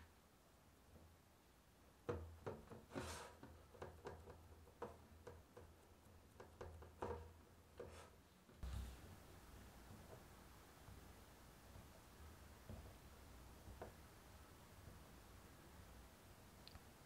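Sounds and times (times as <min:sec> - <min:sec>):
fingers tapping dough in metal tin: 0:02.0 - 0:08.0.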